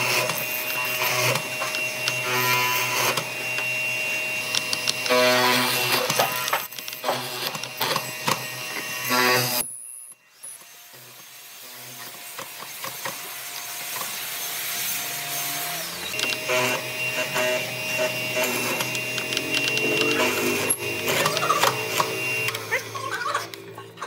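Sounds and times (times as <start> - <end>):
power tool whining on wood: 0.0 - 24.0.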